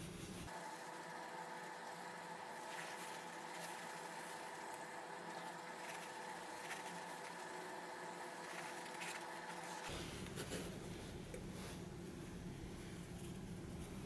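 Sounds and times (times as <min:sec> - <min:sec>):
faint electrical hum: 0:00.0 - 0:14.0.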